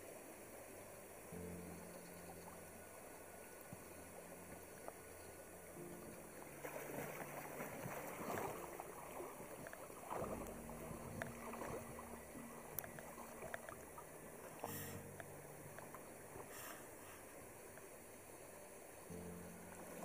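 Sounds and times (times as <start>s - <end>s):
river water lapping and splashing: 0.0s - 20.0s.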